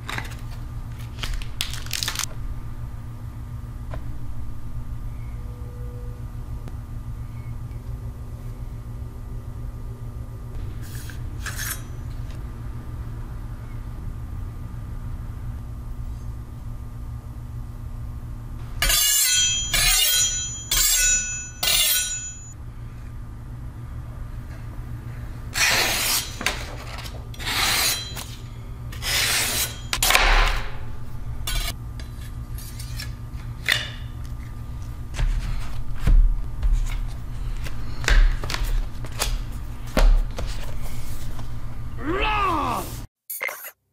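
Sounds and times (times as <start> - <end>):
steady low hum: 0.0 - 43.1
knife scraping with metallic ring: 10.9 - 12.0, 18.8 - 22.5, 25.5 - 30.0, 31.4 - 33.2.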